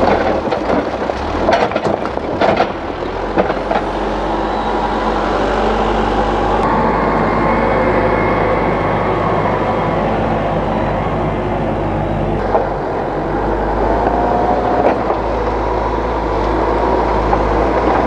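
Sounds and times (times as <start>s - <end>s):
soil and stones knocking: 0.0s - 3.9s
diesel engine running: 0.0s - 18.0s.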